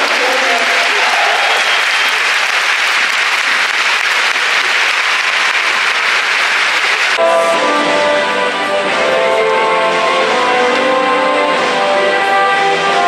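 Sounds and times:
stadium crowd applauding: 0.0 - 7.2.

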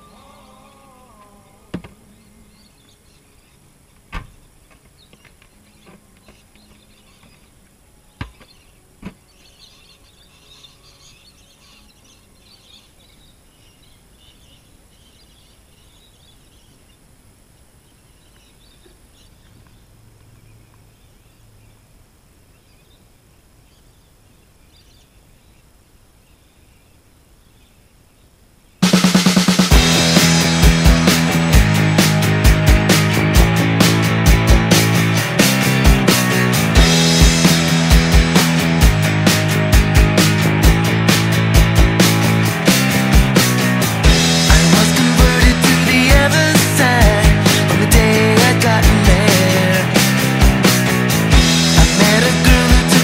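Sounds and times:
faint high chirping: 0.0 - 28.8
rock music: 28.8 - 53.0.

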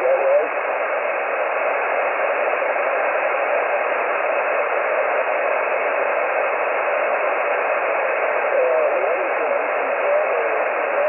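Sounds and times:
radio static hiss: 0.0 - 11.0.

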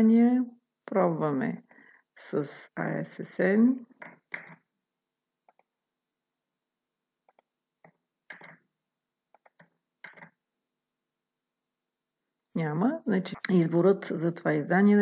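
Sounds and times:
mouse and keyboard clicks: 4.0 - 4.6, 5.5 - 5.7, 7.3 - 8.6, 9.3 - 10.4.

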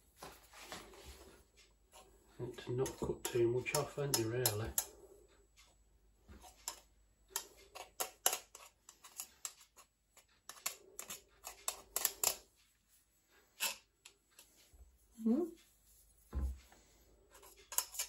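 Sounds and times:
knife clicking and scraping metal rim: 2.8 - 5.0, 6.4 - 12.5, 13.6 - 14.5, 17.4 - 18.0.

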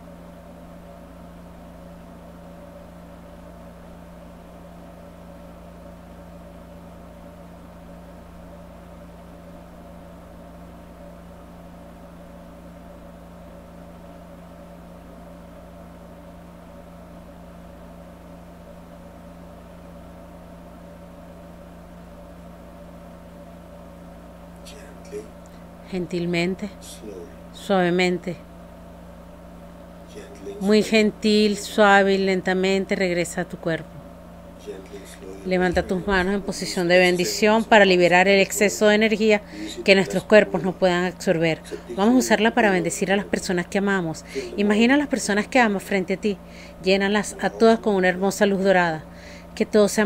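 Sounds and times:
low hum: 23.2 - 50.0.

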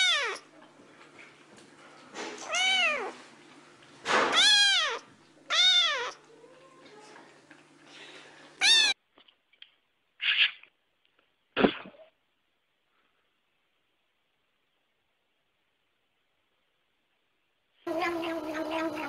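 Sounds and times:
kitten meowing: 0.0 - 0.4, 2.4 - 3.2, 4.3 - 6.2, 8.6 - 9.0.

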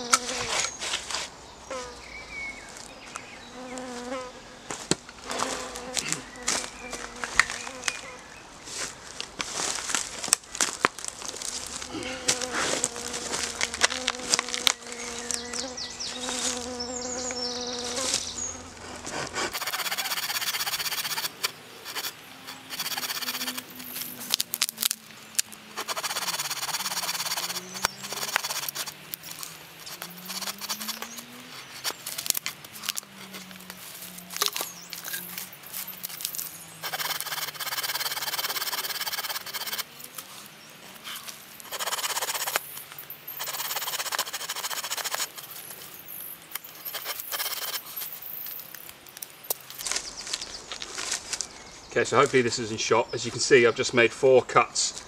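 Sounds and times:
insect buzzing: 0.0 - 0.8, 3.4 - 8.3, 11.9 - 18.8, 19.5 - 49.8
knife scraping wooden pole: 19.0 - 24.2, 25.8 - 33.6, 36.8 - 39.9, 41.0 - 48.6.

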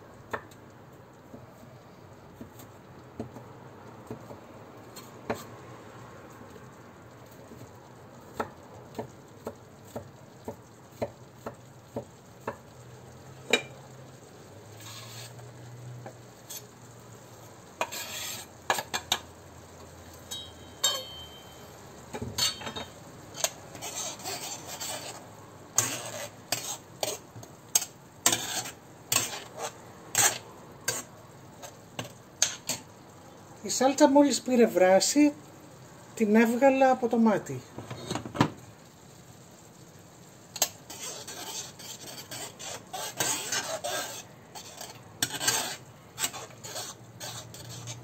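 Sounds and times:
onion sizzling in oil: 0.0 - 48.0
metal spoon stirring in pan: 2.4 - 5.7, 7.3 - 33.0, 40.4 - 48.0
knife scraping wooden board: 17.8 - 18.5, 23.4 - 25.2, 25.8 - 27.2, 28.3 - 31.0, 40.9 - 48.0
spoon knocking against pan: 20.3 - 21.6.

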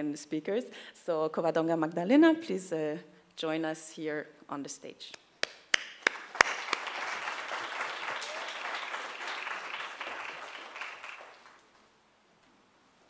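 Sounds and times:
audience applauding: 5.7 - 11.8.

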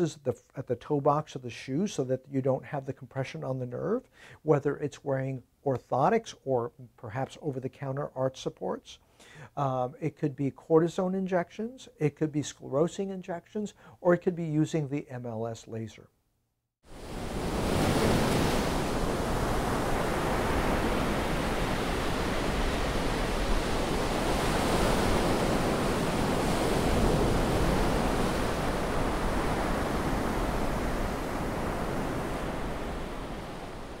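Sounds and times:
waves washing onto sandy beach: 16.9 - 34.0.

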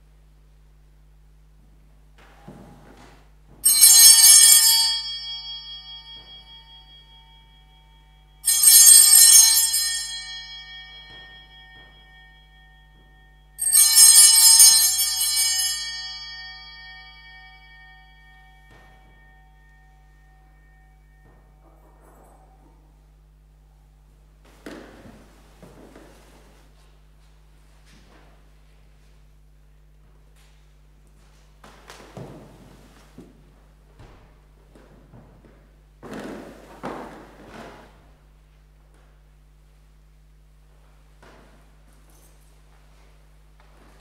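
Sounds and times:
altar bells ringing: 3.6 - 23.0.

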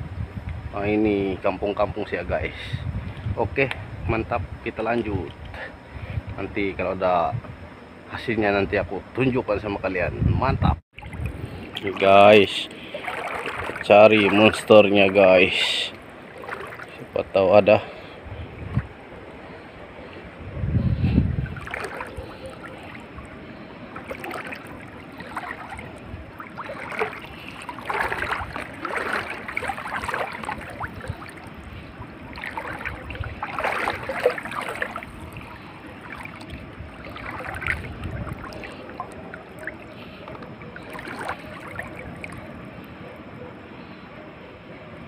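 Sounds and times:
footsteps wading through water: 11.0 - 19.0, 21.3 - 42.9.

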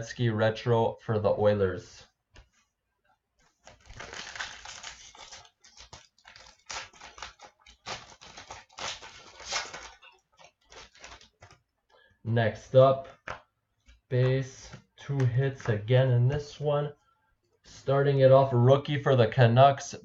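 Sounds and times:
cards handled: 3.4 - 11.8, 13.0 - 16.5
card pack wrapper crinkling: 3.6 - 11.6.

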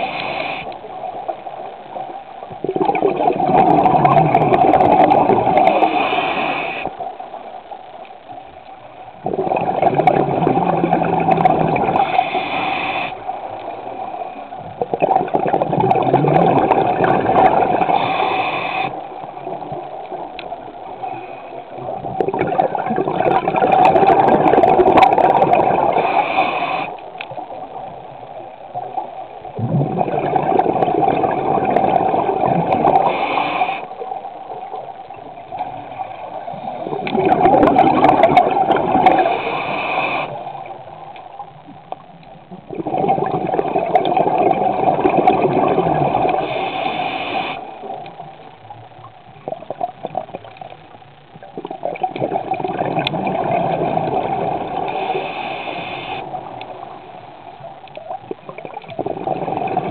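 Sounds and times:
bubbling exhalations: 2.6 - 6.6, 9.2 - 12.1, 14.8 - 18.1, 21.8 - 26.8, 29.6 - 33.8, 36.5 - 39.7, 42.7 - 47.6, 51.5 - 56.3, 58.3 - 59.9.

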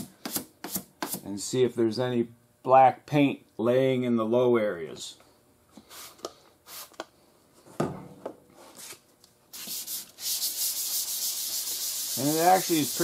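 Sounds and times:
sandpaper rasping on wet panel: 9.6 - 13.0.

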